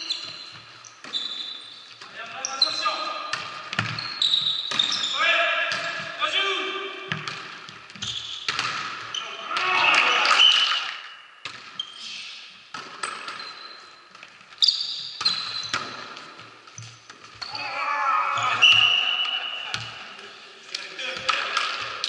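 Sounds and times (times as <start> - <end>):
sneaker squeaks on floor: 0.0 - 6.1, 7.9 - 9.4, 11.6 - 17.6
players calling out: 17.4 - 21.8.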